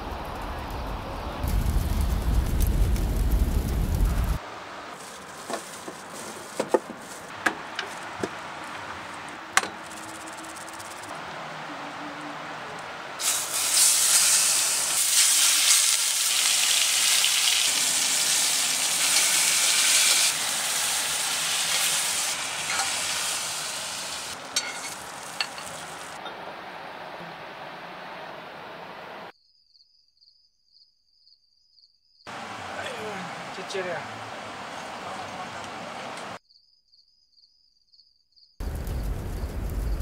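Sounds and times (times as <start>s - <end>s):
meat sizzling in a hot pan: 13.2s - 26.2s
kitchen utensils clicking: 22.6s - 23.1s, 24.5s - 25.9s.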